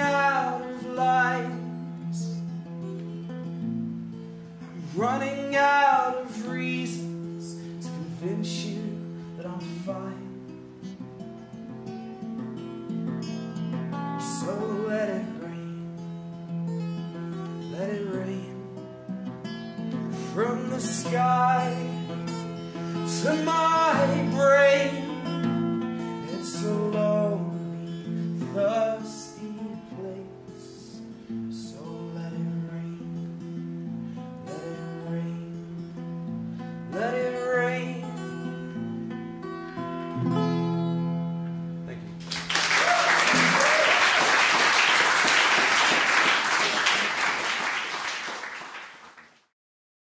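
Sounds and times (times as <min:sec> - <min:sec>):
man singing: 0:00.0 - 0:02.6, 0:04.6 - 0:10.6, 0:14.2 - 0:16.0, 0:17.6 - 0:18.8, 0:20.1 - 0:33.5, 0:34.4 - 0:35.8, 0:36.9 - 0:38.8
acoustic guitar strummed: 0:00.0 - 0:42.3
audience applauding: 0:42.2 - 0:49.5.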